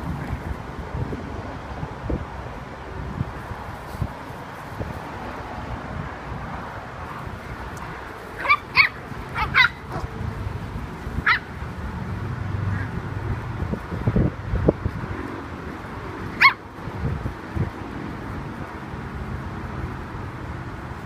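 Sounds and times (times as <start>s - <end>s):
puppies yipping: 8.2s - 10.2s, 11.2s - 11.6s, 16.3s - 16.6s.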